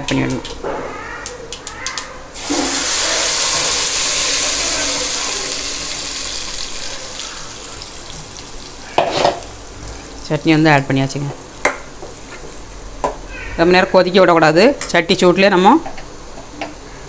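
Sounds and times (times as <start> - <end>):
paste sizzling in hot oil: 2.4 - 9.6.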